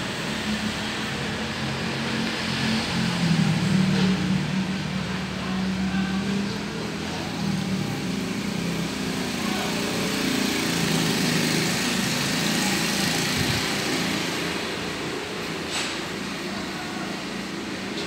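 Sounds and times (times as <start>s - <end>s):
small engine running: 7.4s - 14.9s.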